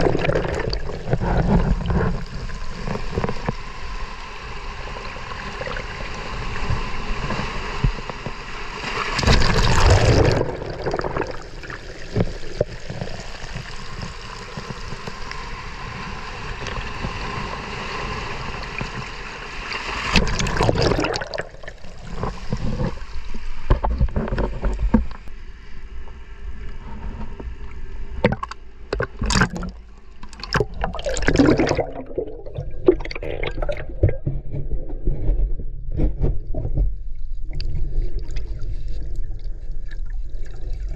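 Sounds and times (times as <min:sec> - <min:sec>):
water sloshing and gurgling: 0:00.0 - 0:25.8, 0:26.8 - 0:40.9.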